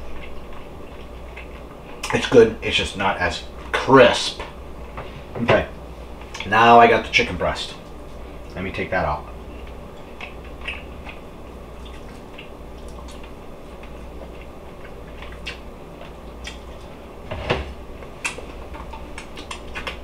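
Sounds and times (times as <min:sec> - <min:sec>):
person chewing with mouth smacks: 0:00.0 - 0:02.2, 0:09.3 - 0:17.0, 0:18.0 - 0:20.0.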